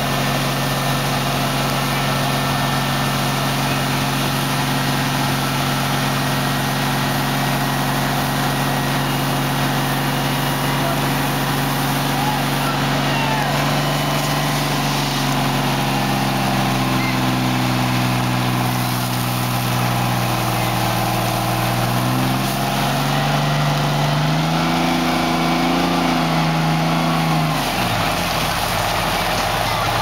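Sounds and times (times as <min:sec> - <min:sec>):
diesel engine running hard: 0:00.0 - 0:30.0
water spray hissing: 0:07.0 - 0:23.1.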